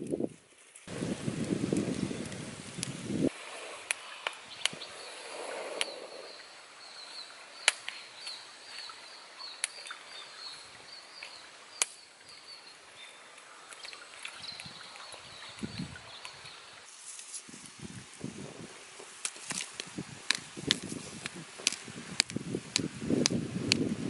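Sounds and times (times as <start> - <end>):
wood fire crackling and popping: 0.0 - 4.9, 7.6 - 8.3, 11.2 - 12.0, 18.6 - 23.9
rustling: 0.0 - 9.0, 13.1 - 22.9.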